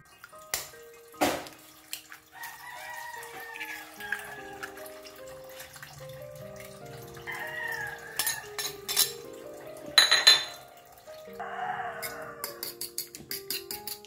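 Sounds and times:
background music: 0:00.0 - 0:14.0
utensil clinking on ceramic bowl: 0:08.1 - 0:10.7, 0:12.0 - 0:14.0
fork tapping in bowl: 0:12.0 - 0:14.0.

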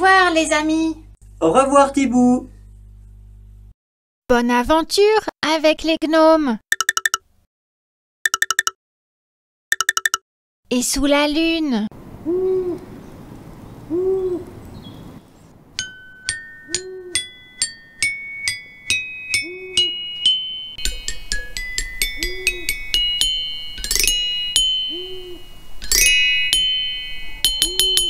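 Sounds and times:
soft owl hoots: 0:12.2 - 0:13.0, 0:13.9 - 0:14.6, 0:16.7 - 0:17.3, 0:19.4 - 0:20.0, 0:22.2 - 0:22.8, 0:24.9 - 0:25.5, 0:27.4 - 0:28.0
chiming bell-like melody: 0:15.8 - 0:28.0.

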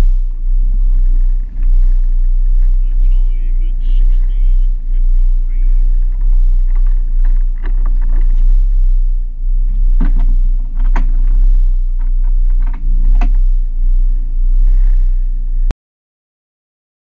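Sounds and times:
wind buffeting microphone: 0:00.0 - 0:15.6
boat engine running: 0:00.0 - 0:15.7.

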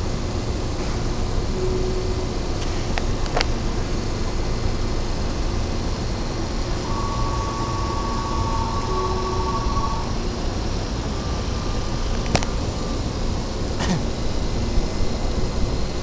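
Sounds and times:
two-pitch electronic tone: 0:01.5 - 0:02.6, 0:06.8 - 0:10.2.

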